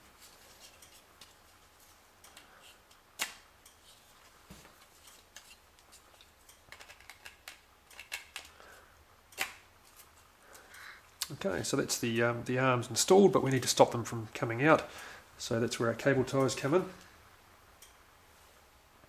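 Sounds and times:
plastic parts clicking together: 6.7s - 8.5s.

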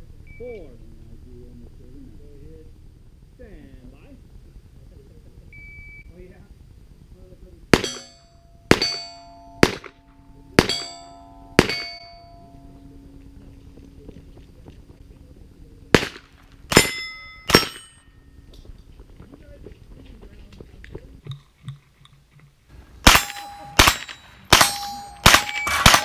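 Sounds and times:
pistol shots: 7.7s - 12.2s, 15.9s - 18.0s, 23.0s - 26.0s
steel plate ringing: 7.8s - 13.5s, 16.7s - 18.4s, 23.0s - 26.0s.

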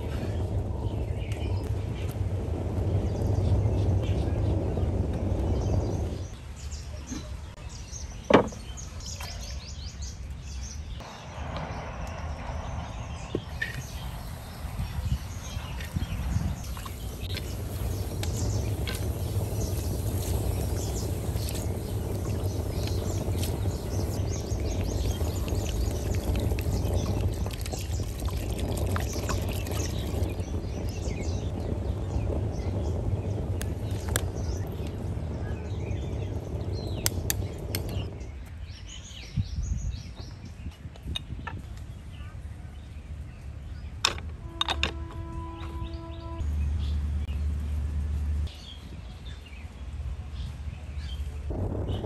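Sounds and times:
birds chirping: 0.0s - 52.0s
water pouring into a pot: 16.6s - 32.6s.

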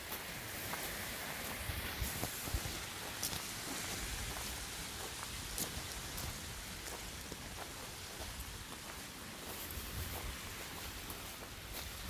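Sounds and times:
footsteps on gravel: 0.0s - 12.0s
wind buffeting microphone: 1.4s - 7.2s, 9.6s - 12.0s.

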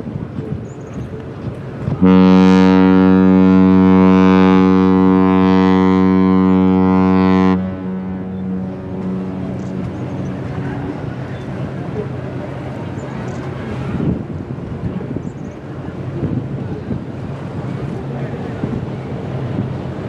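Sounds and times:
deep ship's horn blast: 1.8s - 14.1s.

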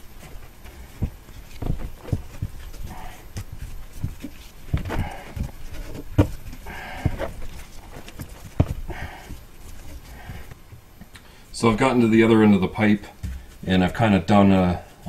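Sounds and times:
wrap rustling: 0.0s - 10.7s.

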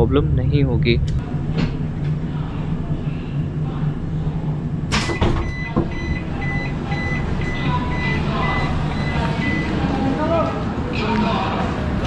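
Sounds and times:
steady low rumble: 0.0s - 12.0s
electronic warning beeper: 5.0s - 9.8s.

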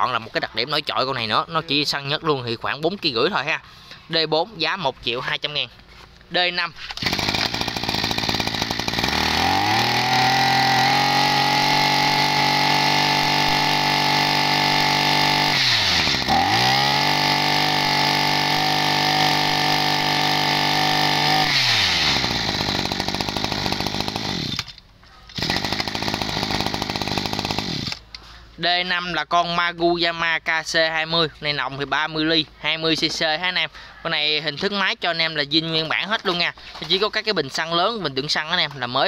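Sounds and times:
brush-cutter engine running: 6.9s - 28.1s.

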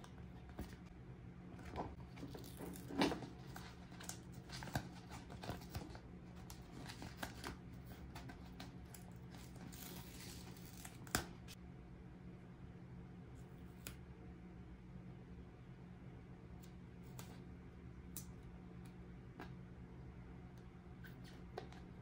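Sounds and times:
packaging crinkling and tearing: 2.1s - 11.6s.

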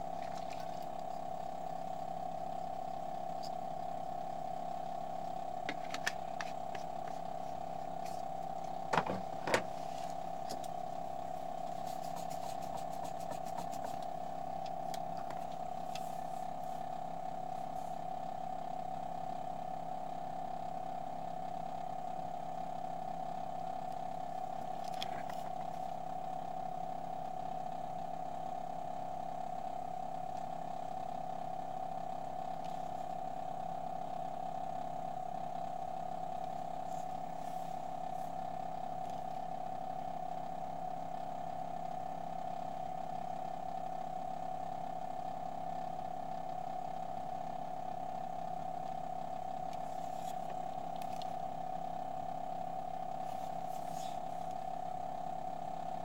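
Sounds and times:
mechanical hum: 0.0s - 56.0s.

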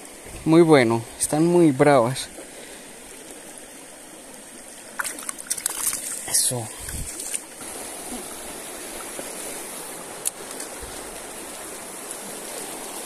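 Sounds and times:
stream water running: 0.0s - 13.0s.

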